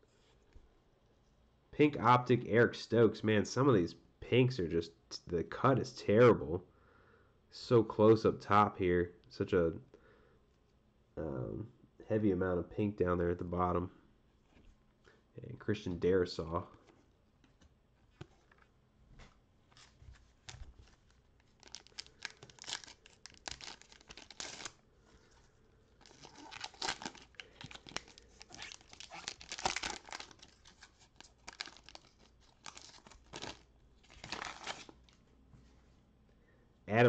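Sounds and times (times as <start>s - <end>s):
foil wrapper tearing and crinkling: 21.4s - 24.8s, 26.0s - 35.0s.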